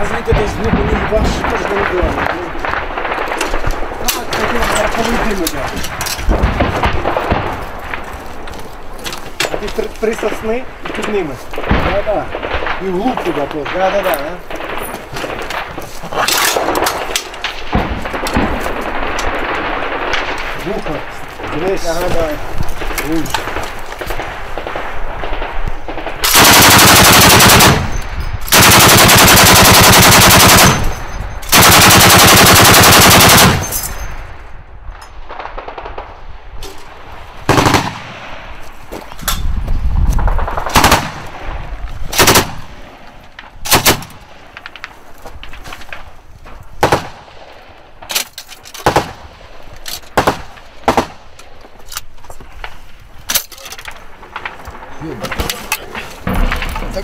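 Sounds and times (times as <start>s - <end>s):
machine gun bursts: 26.2s - 34.0s, 40.5s - 41.1s, 42.2s - 42.6s
single gunshots: 37.5s - 38.4s, 46.8s - 47.4s.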